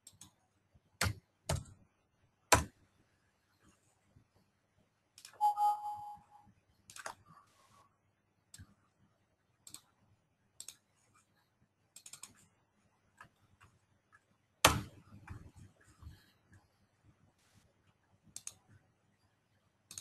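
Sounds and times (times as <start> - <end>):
computer mouse clicks: 0.0 - 0.4, 6.9 - 7.2, 9.6 - 10.0, 10.6 - 10.9, 11.9 - 12.5, 18.3 - 18.7.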